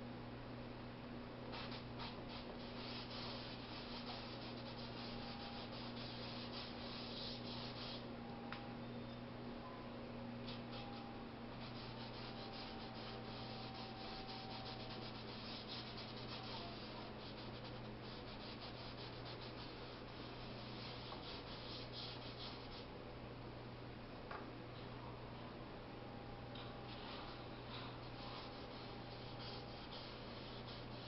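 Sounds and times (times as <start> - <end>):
faint steady hum: 0.0 - 31.0
paintbrush scratching on canvas: 1.6 - 8.0, 10.5 - 22.9, 26.9 - 31.0.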